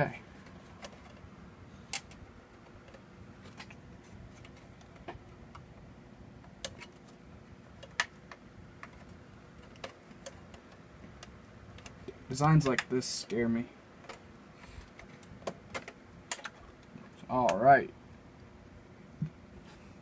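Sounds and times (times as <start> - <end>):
plastic clips clicking: 14.9 - 16.6.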